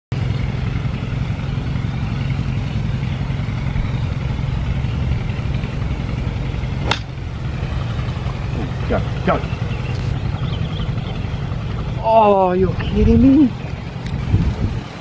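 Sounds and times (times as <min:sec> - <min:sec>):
steady low rumble: 0:00.1 - 0:15.0
golf club striking ball: 0:06.6 - 0:08.7.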